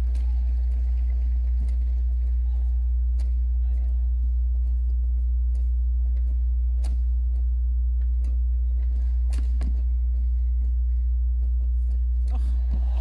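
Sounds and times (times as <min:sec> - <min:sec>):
low hum: 0:00.0 - 0:13.0
rackets striking shuttlecock: 0:02.9 - 0:04.0, 0:04.6 - 0:10.7.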